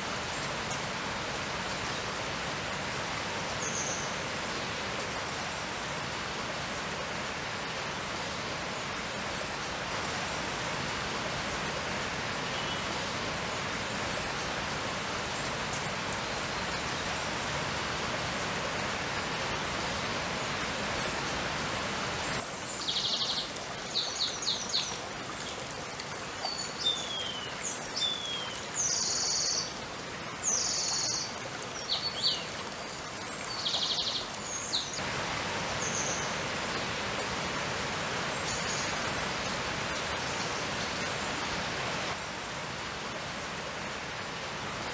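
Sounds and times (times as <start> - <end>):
stream running over stones: 0.0 - 44.9
songbird singing: 26.4 - 29.7, 30.5 - 32.5.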